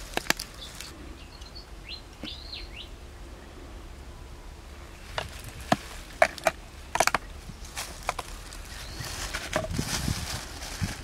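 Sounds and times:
plastic container clicks and crinkles: 5.2s - 8.4s
soft rustling: 7.6s - 11.0s.

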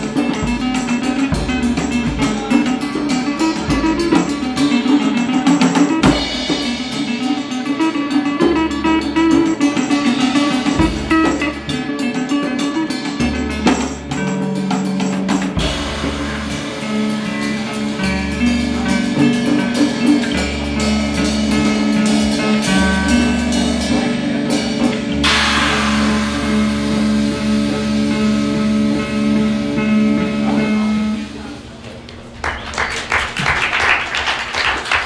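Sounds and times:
live band playing: 0.0s - 35.0s
cymbal wash: 25.2s - 31.7s.

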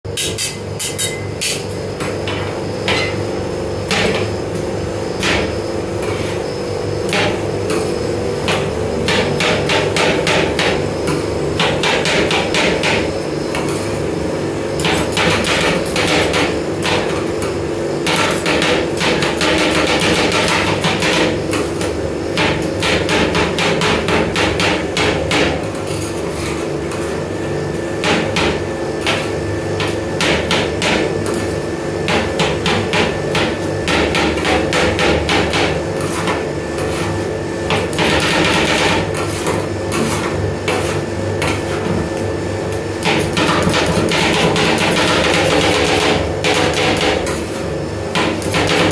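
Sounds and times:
steady low hum: 0.1s - 48.9s
metal spatulas clacking on plate: 0.2s - 1.6s.

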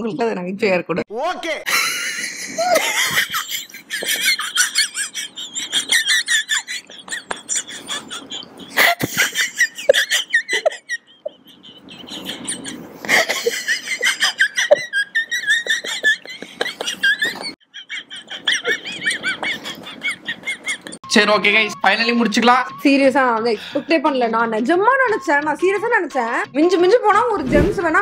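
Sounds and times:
people laughing hard: 1.7s - 21.0s.

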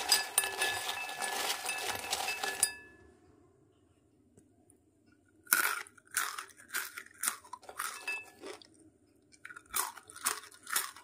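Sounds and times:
crunchy snack being chewed: 5.4s - 11.0s.

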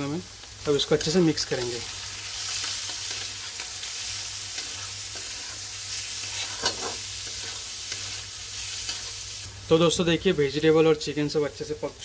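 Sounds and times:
food sizzling in hot oil: 0.0s - 12.0s
spatula scraping pan: 2.4s - 9.2s.

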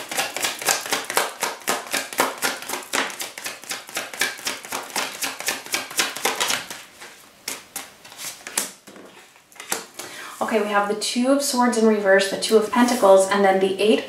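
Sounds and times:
cards being shuffled: 0.0s - 10.1s.

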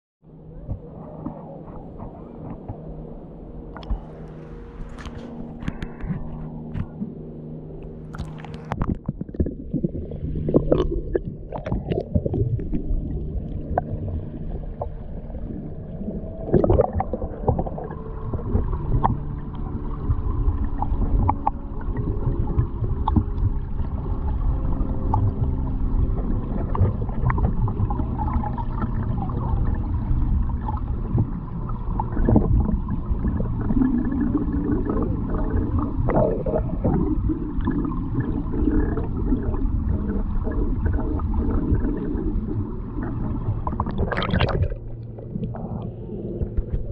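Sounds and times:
low steady hum: 0.2s - 46.9s
underwater river gurgling: 0.3s - 46.9s
water splashing: 0.5s - 46.9s
underwater clicks and knocks: 0.6s - 2.9s, 3.7s - 7.1s, 7.8s - 12.9s, 16.5s - 24.0s, 24.8s - 29.7s, 30.3s - 33.4s, 43.0s - 46.9s.

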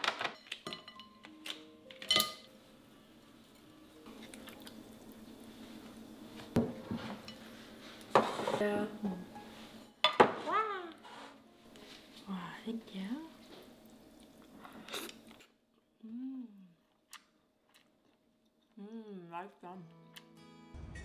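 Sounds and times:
ceramic dishes clinking: 2.0s - 2.5s.

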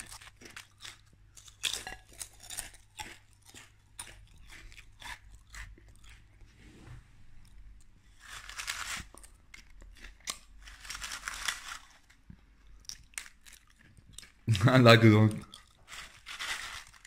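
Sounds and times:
potato chips crunching: 0.0s - 6.4s, 8.1s - 17.0s
plastic chip bag crinkling: 8.2s - 17.0s.

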